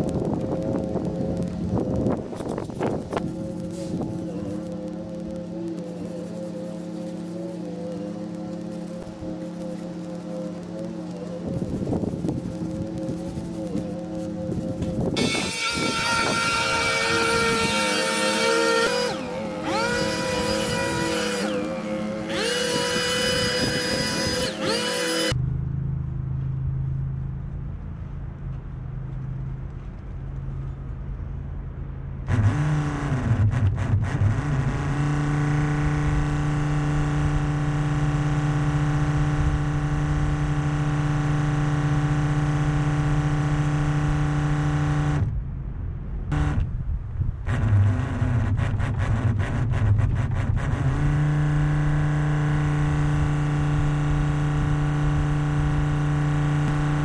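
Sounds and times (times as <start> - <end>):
diaphragm pump humming: 2.2 - 25.4.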